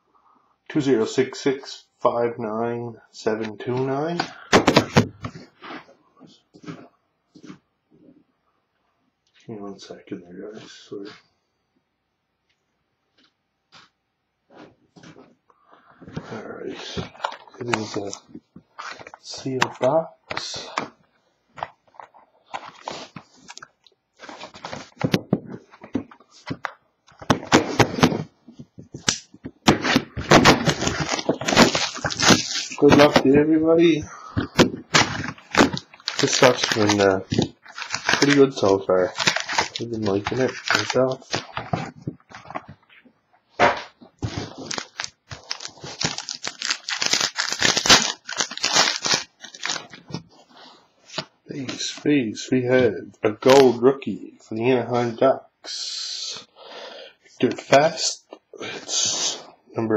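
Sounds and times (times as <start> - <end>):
plastic wrap tearing and crinkling: 29.0 - 42.8, 43.7 - 50.2.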